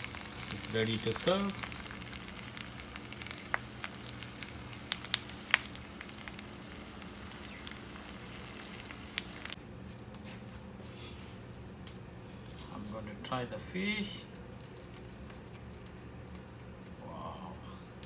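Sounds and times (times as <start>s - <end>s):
fish sizzling in a frying pan: 0.0s - 9.6s
sharp pops and crackles: 0.0s - 9.6s, 14.4s - 17.0s
steady low hum: 0.0s - 18.0s.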